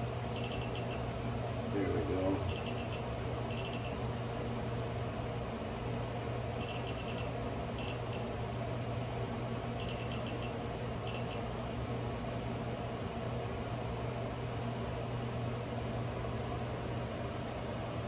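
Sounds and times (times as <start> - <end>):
fan humming: 0.0 - 18.0
power supply beeping: 0.4 - 1.0, 2.4 - 4.0, 6.6 - 8.3, 9.8 - 11.4.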